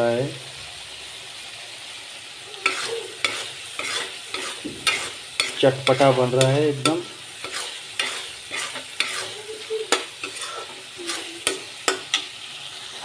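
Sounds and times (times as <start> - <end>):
food sizzling in oil: 0.0 - 13.0
metal spoon scraping a pan: 2.6 - 12.4.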